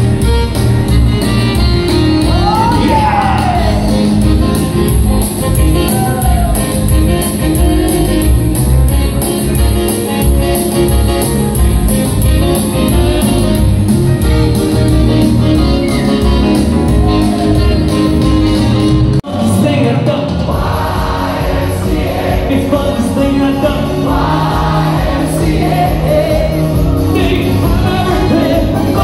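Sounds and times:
live band playing dance music: 0.0s - 29.0s
person calling out: 2.2s - 4.2s.

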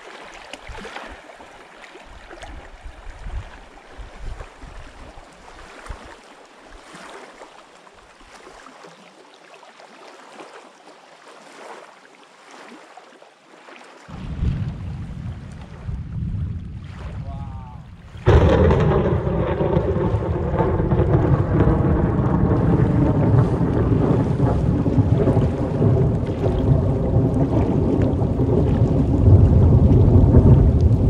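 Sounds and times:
waves lapping against rocks: 0.0s - 31.0s
wind rumble on microphone: 2.1s - 6.2s, 14.1s - 31.0s.

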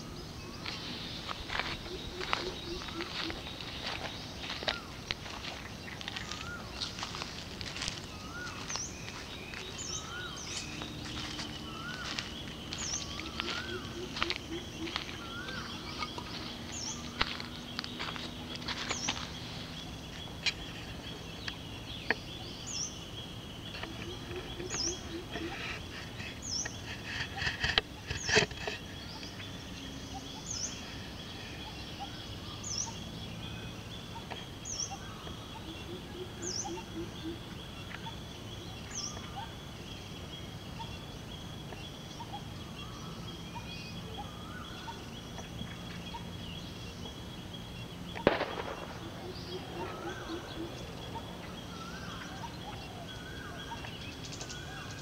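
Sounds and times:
high insect drone: 0.0s - 55.0s
other birds calling lower: 0.0s - 55.0s
bird repeating high downward call: 9.5s - 17.1s, 48.2s - 53.9s.

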